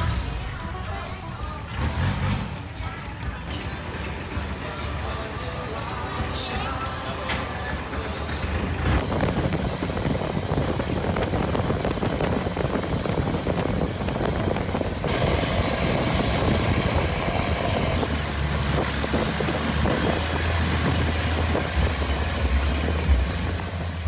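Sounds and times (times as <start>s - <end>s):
motorboat engine humming: 1.3s - 24.0s
loud hiss: 8.8s - 24.0s.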